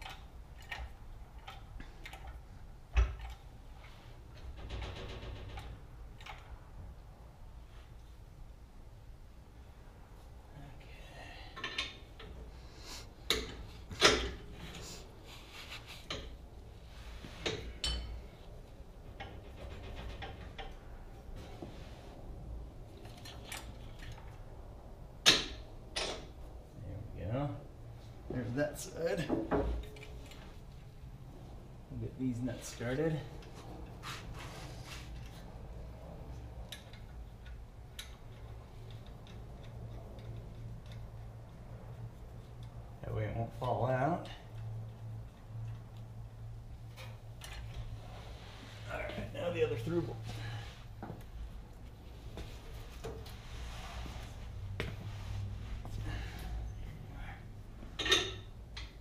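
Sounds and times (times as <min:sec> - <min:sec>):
metal clanks and knocks: 0:19.0 - 0:21.1
metal clicks and ticks: 0:36.4 - 0:41.2.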